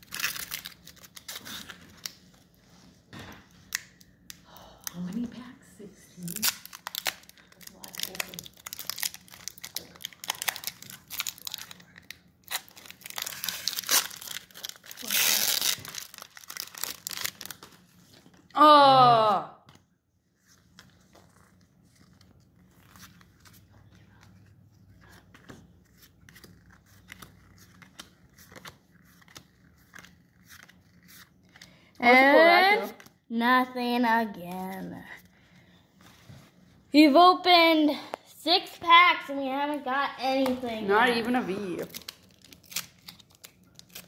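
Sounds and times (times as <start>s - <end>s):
foil wrapper crinkling: 0.0s - 2.2s, 6.3s - 18.3s, 41.3s - 44.0s.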